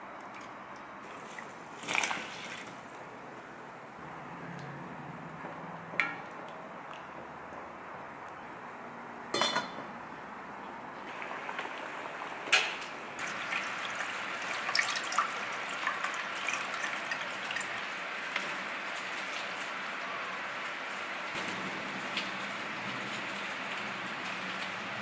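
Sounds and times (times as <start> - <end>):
water boiling in a pot: 0.0 - 4.8, 10.4 - 25.0
water pouring into metal strainer: 13.2 - 17.9.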